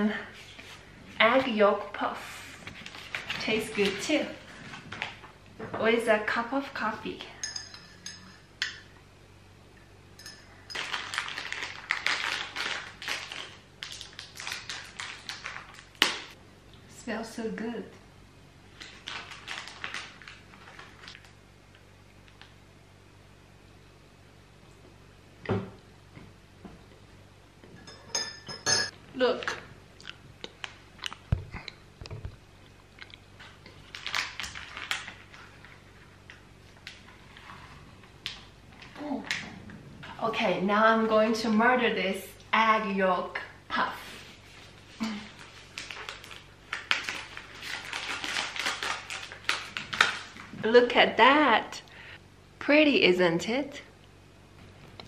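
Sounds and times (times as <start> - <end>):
plastic wrapper crinkling: 2.7 - 5.3, 10.7 - 16.4, 18.7 - 21.4, 32.6 - 36.1, 44.6 - 50.6
wrapper sharp snap: 10.9 - 16.4
chewing crunchy pastry: 29.5 - 31.8, 32.5 - 36.0.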